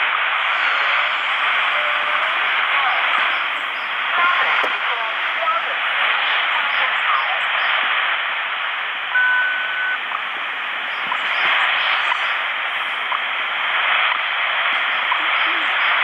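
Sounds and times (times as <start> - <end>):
shortwave radio static: 0.0 - 16.0
short steady beep: 9.1 - 10.2.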